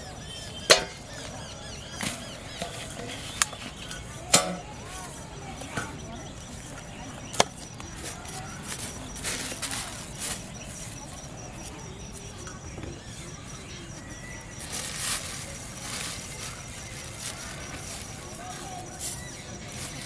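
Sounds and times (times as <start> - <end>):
plastic bag rustling: 7.9 - 11.1, 14.2 - 20.0.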